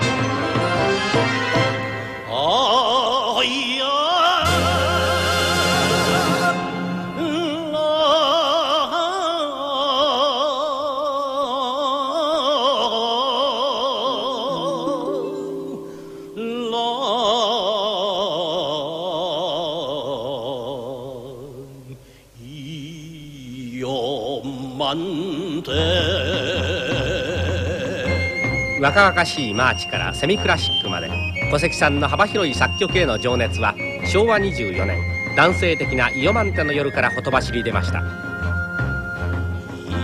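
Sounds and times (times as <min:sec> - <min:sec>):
musical accompaniment: 0:00.0 - 0:09.3, 0:14.1 - 0:18.4, 0:25.6 - 0:40.0
man singing operatically: 0:00.0 - 0:38.2.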